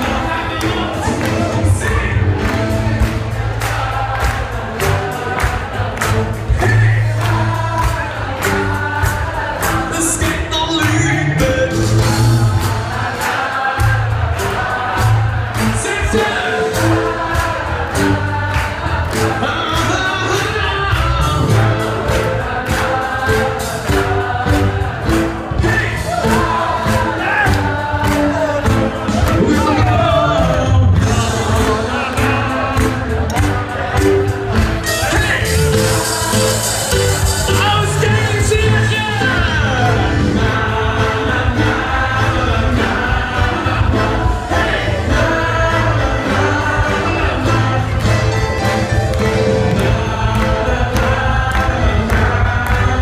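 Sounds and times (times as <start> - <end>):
electric bass: 0.0 - 13.0, 13.8 - 53.0
crowd clapping in time: 0.0 - 42.1, 45.8 - 53.0
crowd singing along: 0.0 - 53.0
loud party music: 0.0 - 53.0
button accordion: 31.2 - 53.0.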